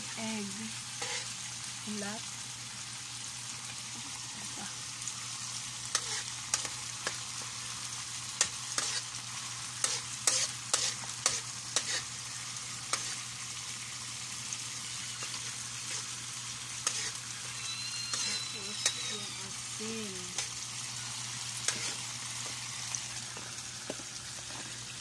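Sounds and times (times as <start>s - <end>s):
food sizzling in a wok: 0.0s - 25.0s
metal spatula scraping a pan: 1.0s - 1.3s, 5.9s - 7.2s, 8.4s - 9.1s, 9.8s - 12.1s, 12.9s - 13.2s, 15.2s - 16.2s, 16.8s - 19.6s, 21.6s - 22.1s.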